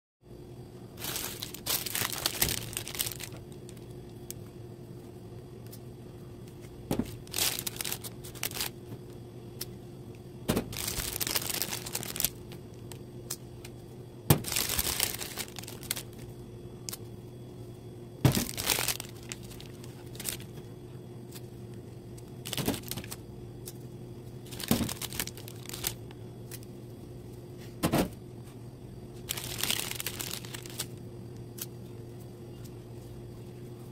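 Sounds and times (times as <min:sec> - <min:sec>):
paper or plastic crinkling: 0:01.0 - 0:03.8, 0:07.0 - 0:08.8, 0:10.7 - 0:13.0, 0:14.4 - 0:16.2, 0:18.3 - 0:20.5, 0:22.4 - 0:23.2, 0:24.5 - 0:26.0, 0:29.3 - 0:31.0.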